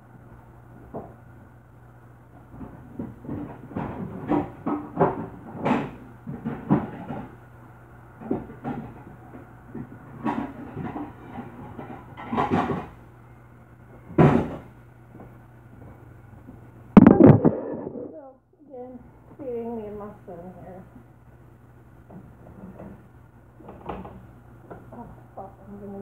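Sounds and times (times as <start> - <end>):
low hum: 17.0 - 18.4.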